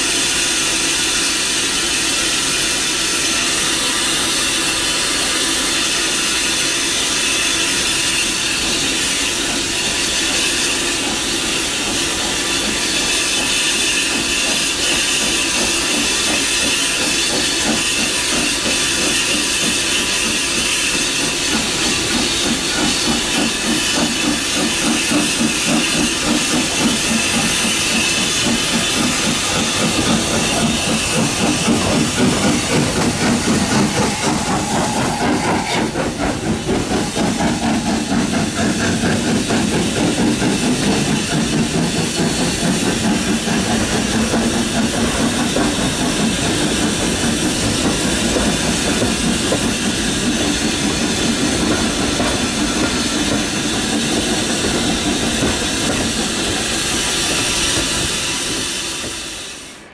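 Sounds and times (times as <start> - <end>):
hissing steam: 0.0 - 59.9
steam locomotive chuffing: 0.0 - 59.9
train coaches rolling on track: 0.0 - 59.9.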